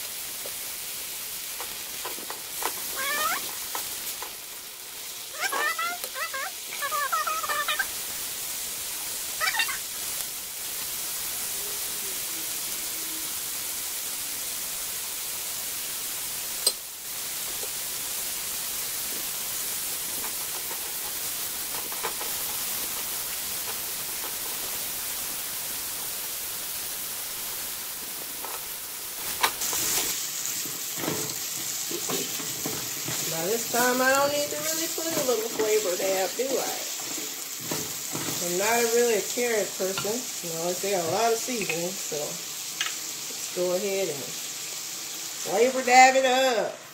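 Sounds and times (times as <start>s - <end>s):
vegetables sizzling in oil: 0.0s - 46.9s.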